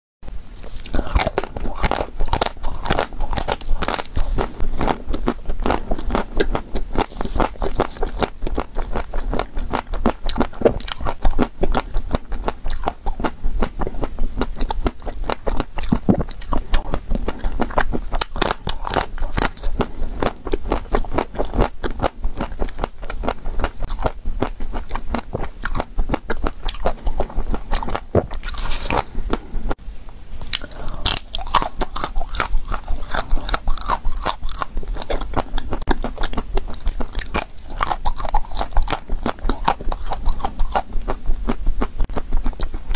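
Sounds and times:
chewing ice cream: 0.4 - 29.8, 30.4 - 42.9
chocolate shell crunching: 0.6 - 29.4, 30.5 - 42.8.

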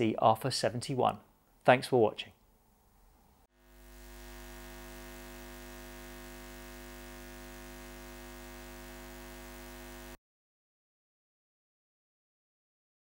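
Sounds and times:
neon sign electrical buzz: 3.6 - 10.2.

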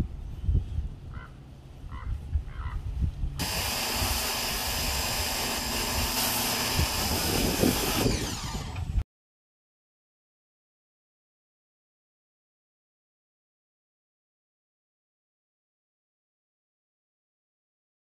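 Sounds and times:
pressure washer spraying: 3.4 - 8.9.

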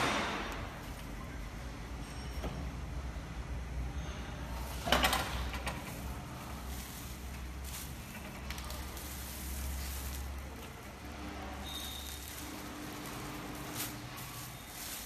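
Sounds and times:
plastic film crinkling: 6.3 - 15.0.

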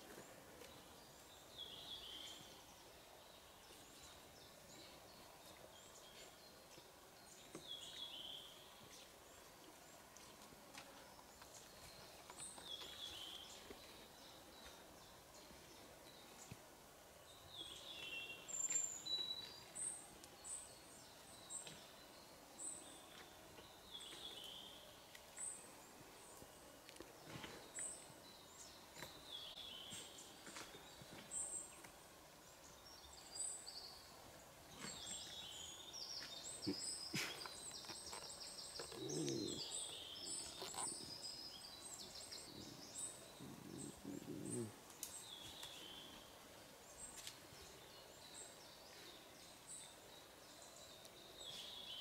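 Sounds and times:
small birds calling: 34.7 - 52.0.

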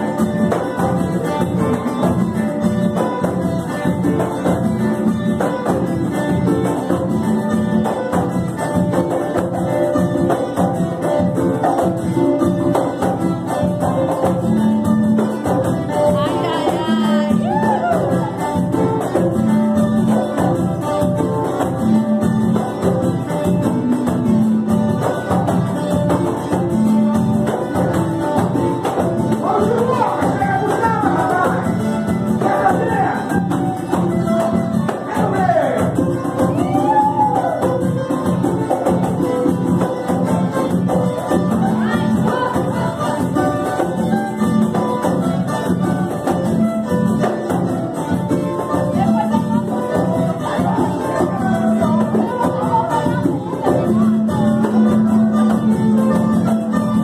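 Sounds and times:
acoustic guitars strummed: 0.0 - 57.0
tambourine and hand drum beat: 0.0 - 57.0
voices singing: 16.0 - 18.6, 29.4 - 33.7, 34.9 - 37.6, 41.5 - 43.8, 49.0 - 55.4.

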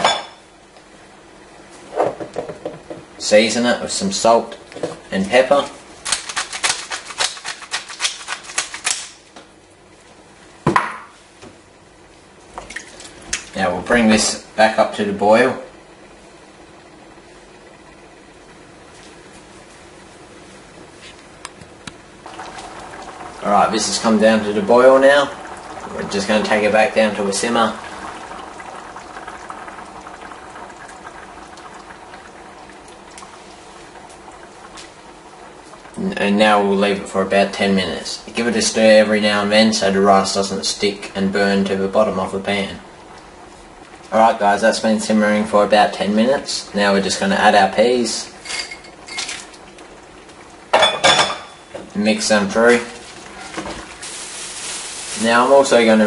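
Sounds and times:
pot bubbling on stove: 21.7 - 56.0.

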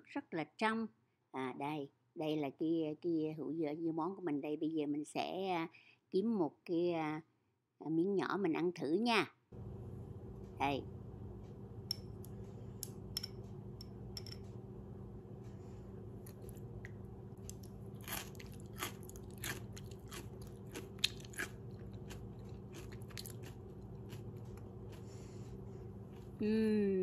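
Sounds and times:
person chewing crunchy pickles: 16.2 - 25.3.

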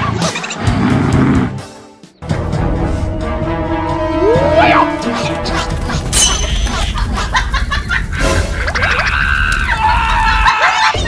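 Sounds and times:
background music: 0.0 - 9.0
comic sound effects: 4.0 - 7.2.

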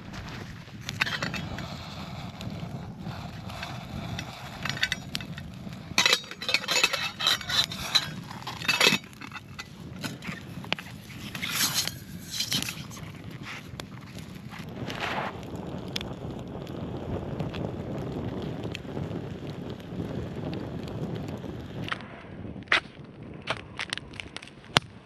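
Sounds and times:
metal pot and handles clinking: 4.1 - 5.4, 6.0 - 10.4, 11.3 - 13.0.

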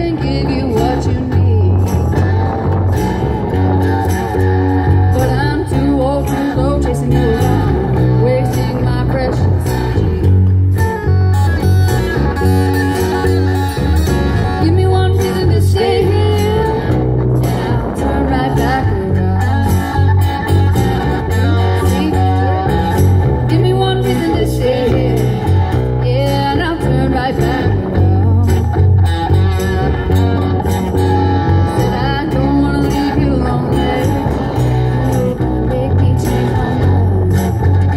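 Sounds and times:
woman singing into microphone: 0.0 - 2.9, 4.8 - 10.5, 14.5 - 20.2, 21.4 - 28.8, 31.5 - 37.9
bass line: 0.0 - 37.9
guitars: 0.0 - 37.9.

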